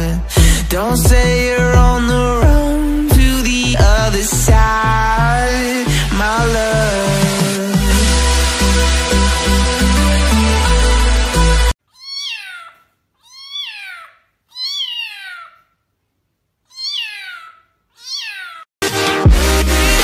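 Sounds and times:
electronic dance music: 0.0 - 4.8, 6.4 - 11.7, 18.8 - 20.0
cat meowing: 11.9 - 15.7, 16.6 - 18.7.

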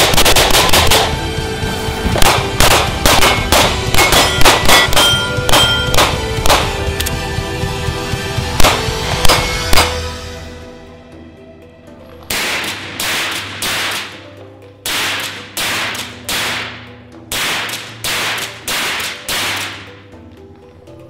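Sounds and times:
noisy percussion hits: 0.0 - 10.4.

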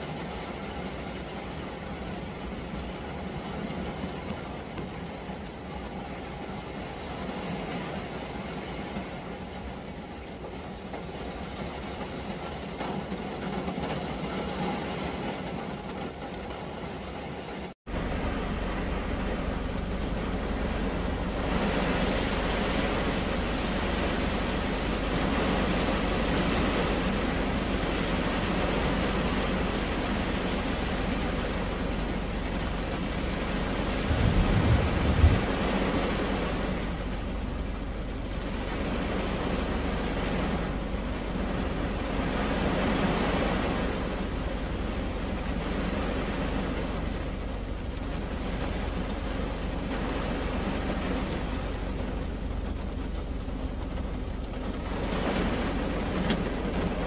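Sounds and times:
rain on car roof: 0.0 - 57.0
low thump: 34.0 - 35.6.

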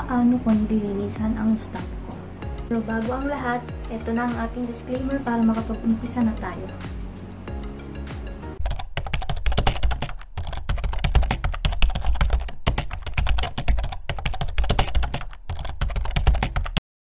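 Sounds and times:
keyboard typing: 8.6 - 16.8.

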